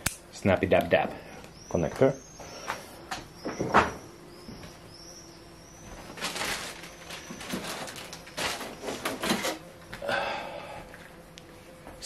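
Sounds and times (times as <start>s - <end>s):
faint high chirps: 1.4s - 8.9s
plastic wrapping crinkling: 5.8s - 9.6s.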